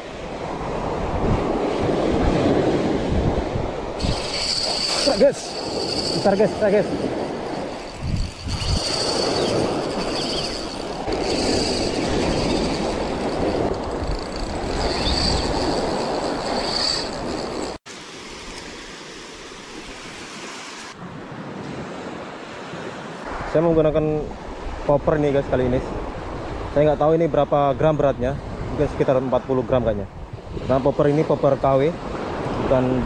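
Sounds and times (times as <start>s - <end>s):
wind on microphone: 0.0s - 17.8s, 24.3s - 31.2s.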